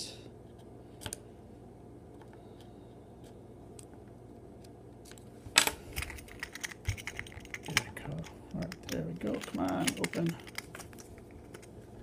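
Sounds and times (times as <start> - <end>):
clicks and rattles of handling: 5.1 - 11.8.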